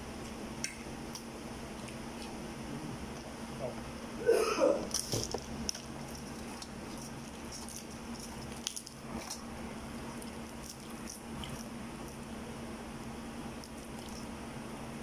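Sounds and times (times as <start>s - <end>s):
steady low hum: 0.0s - 15.0s
crab shell cracking: 4.9s - 9.5s.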